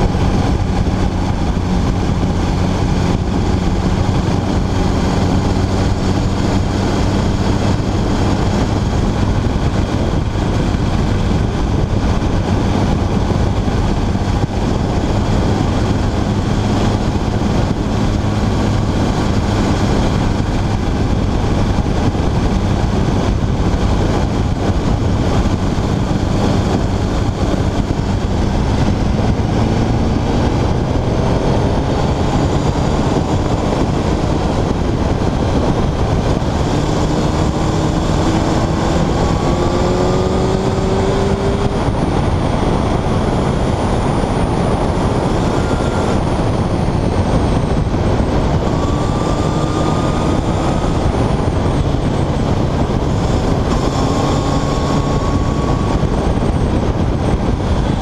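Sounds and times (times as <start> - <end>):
motorcycle engine accelerating: 0.0 - 58.0
wind rush on microphone: 0.0 - 58.0.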